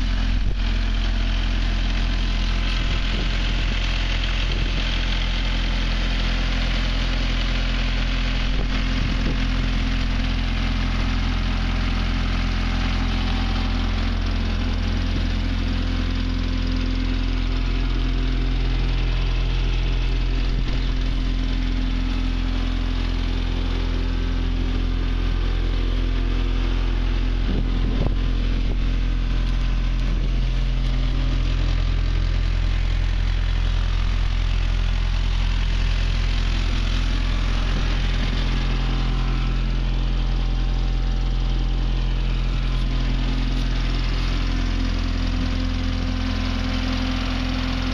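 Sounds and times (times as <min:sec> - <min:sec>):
diesel engine idling: 0:00.0 - 0:47.9.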